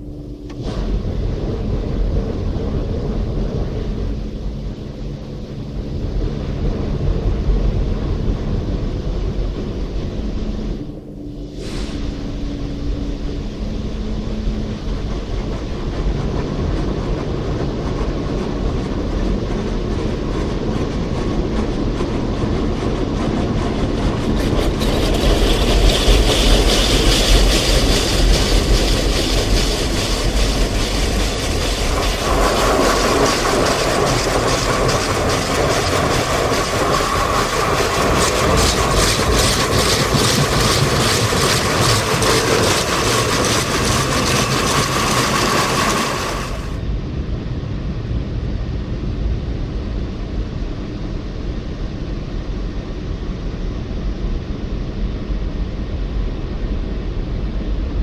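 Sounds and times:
car wash machine rumble: 0:00.0 - 0:46.9
rotating wash brush patter: 0:24.2 - 0:46.8
water spraying on car: 0:24.4 - 0:46.8.

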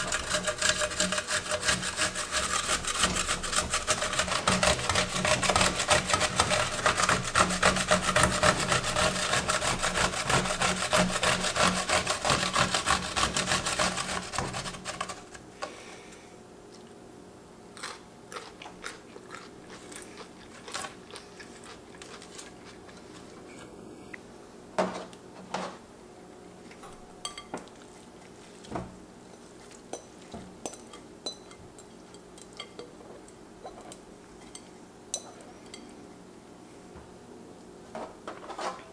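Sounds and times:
cucumber grated on metal grater: 0:00.0 - 0:15.4.

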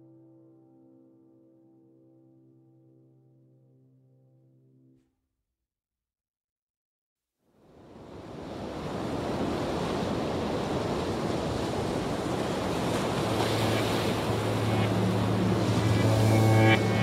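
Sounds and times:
sea waves: 0:07.7 - 0:17.0
steady low hum: 0:13.2 - 0:17.0.

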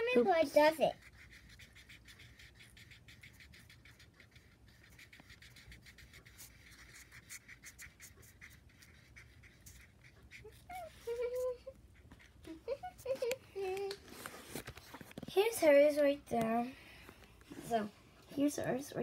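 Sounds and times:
marker scribbling on paper: 0:00.0 - 0:13.4.

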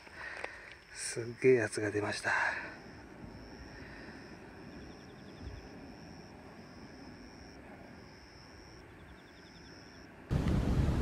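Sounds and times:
low outdoor rumble: 0:09.8 - 0:11.0.

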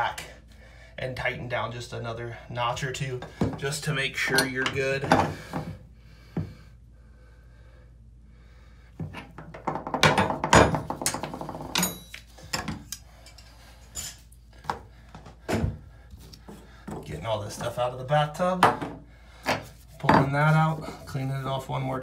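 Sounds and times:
wrench clanking against bathtub: 0:09.1 - 0:13.4.

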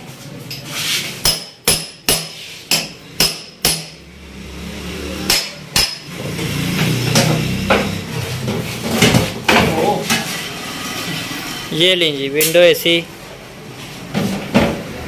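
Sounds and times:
hammer striking metal: 0:01.2 - 0:04.0, 0:05.2 - 0:06.2.

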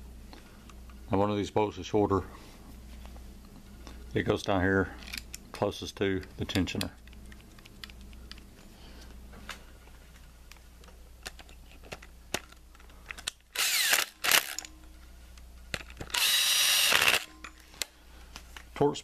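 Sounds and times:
cordless drill running: 0:13.5 - 0:14.6, 0:16.1 - 0:17.3.

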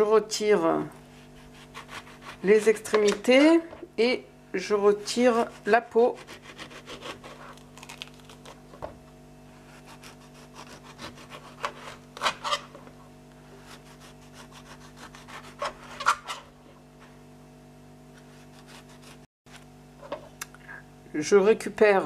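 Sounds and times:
knife scraping through fruit: 0:01.0 - 0:02.5, 0:05.4 - 0:08.6, 0:09.6 - 0:12.8, 0:13.6 - 0:16.6, 0:18.2 - 0:19.3.

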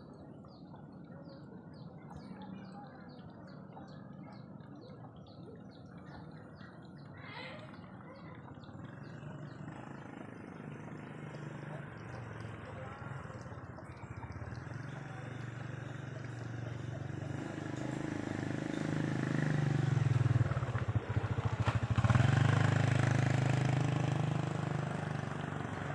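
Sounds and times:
motorcycle engine running: 0:07.7 - 0:25.9.

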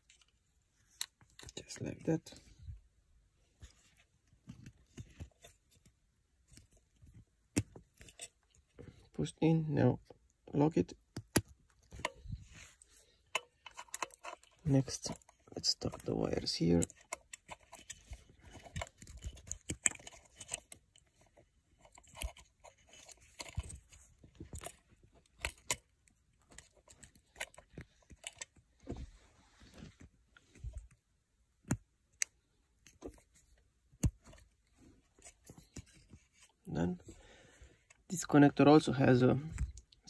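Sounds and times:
wires rustling: 0:11.1 - 0:40.0.

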